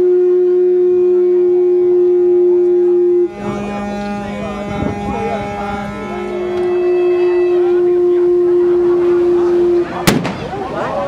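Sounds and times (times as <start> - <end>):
several horn tones together: 0.0 - 10.1
boat horn long note: 0.0 - 10.2
voices: 2.6 - 11.0.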